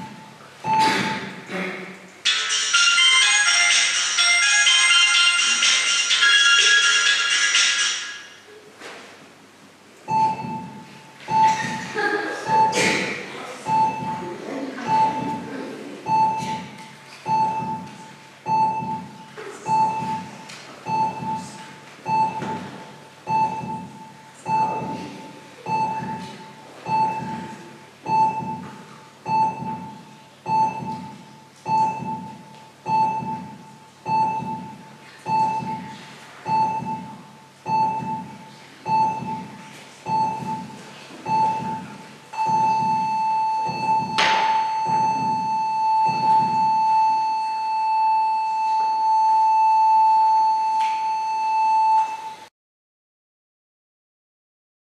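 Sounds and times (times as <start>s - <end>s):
heart monitor beeping: 0.0s - 1.5s, 10.1s - 52.5s
heartbeat thump: 0.0s - 1.6s, 10.1s - 47.0s
flatline continuous tone: 10.1s - 52.5s.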